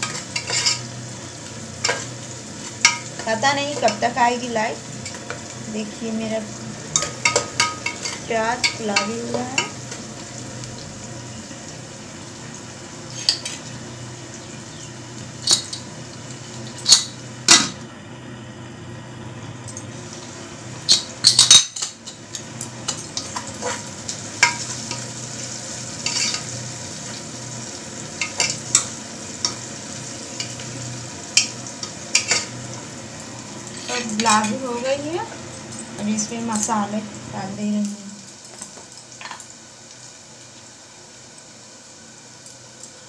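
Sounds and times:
spoon scraping and clinking pot: 0:00.0 - 0:00.9, 0:07.0 - 0:09.8, 0:22.8 - 0:25.1, 0:26.0 - 0:26.5, 0:32.1 - 0:32.5
onions sizzling in oil: 0:00.0 - 0:43.0.

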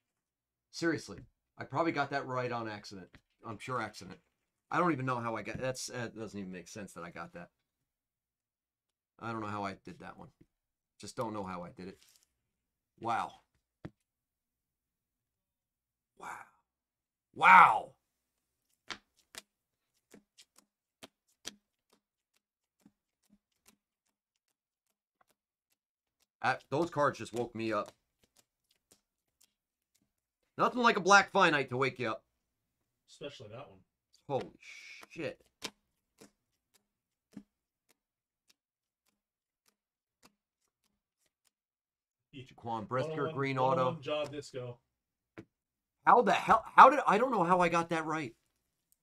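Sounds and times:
faint clicks and taps: 0:13.4 - 0:14.1, 0:18.6 - 0:30.6, 0:34.1 - 0:41.6.

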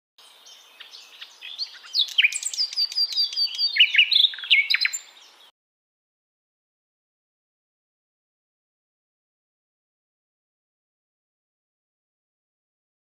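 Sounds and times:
bird singing whistled notes: 0:00.2 - 0:05.5.

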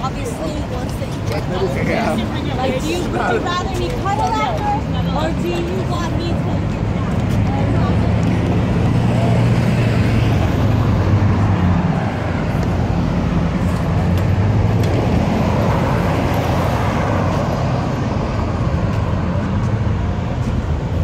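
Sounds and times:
cars driving past: 0:00.0 - 0:21.0.

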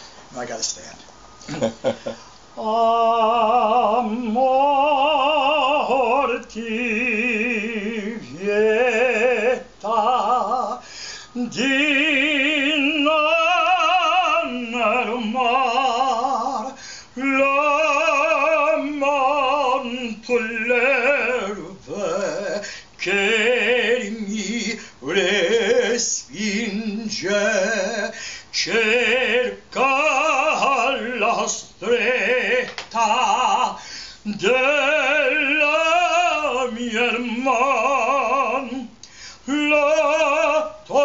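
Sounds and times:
woman singing operatic aria: 0:02.6 - 0:41.0
singer breathing: 0:10.8 - 0:11.4, 0:16.7 - 0:17.2, 0:22.6 - 0:23.0, 0:28.1 - 0:28.5, 0:33.8 - 0:34.3, 0:39.0 - 0:39.5.

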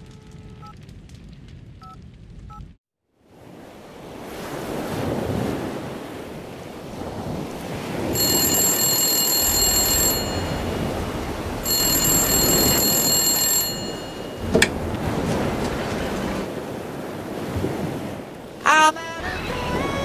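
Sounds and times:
background rush: 0:04.1 - 0:20.0
pay phone ringing: 0:08.2 - 0:14.8.

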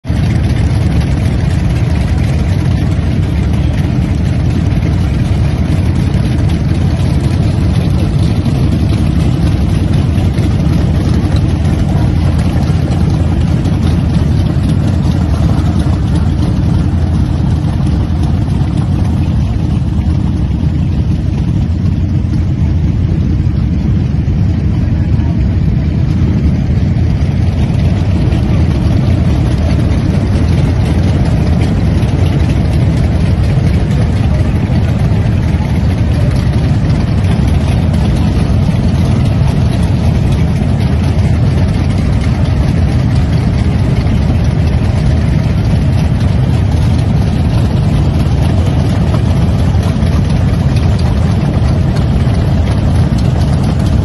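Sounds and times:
motorcycles idling: 0:00.1 - 0:54.0.

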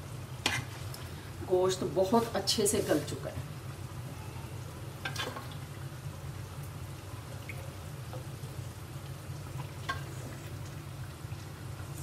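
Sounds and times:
metal spatula scraping steel pot: 0:00.4 - 0:00.8.

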